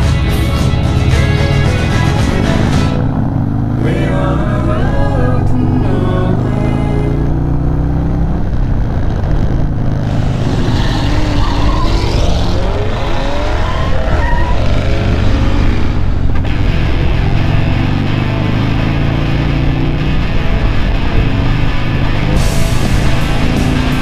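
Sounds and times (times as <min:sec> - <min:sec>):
background music: 0:00.0 - 0:07.2, 0:16.6 - 0:24.0
motorcycle engines: 0:00.0 - 0:24.0
wind rush on microphone: 0:20.2 - 0:24.0.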